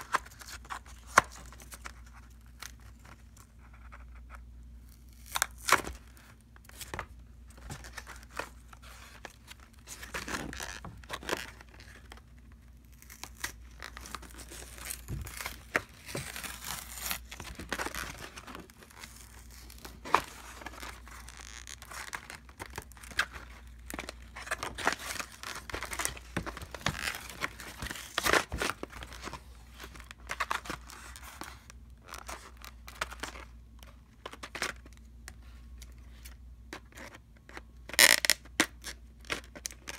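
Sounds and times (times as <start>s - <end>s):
packaging tearing and crinkling: 4.8s - 33.5s.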